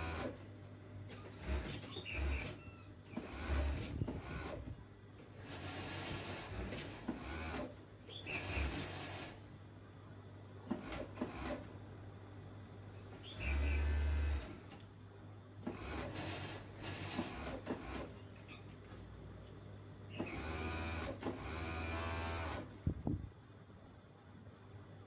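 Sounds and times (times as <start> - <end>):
sewing machine running: 0.0 - 0.4, 1.1 - 2.6, 3.2 - 4.7, 5.3 - 9.4, 15.7 - 18.2, 20.2 - 22.8.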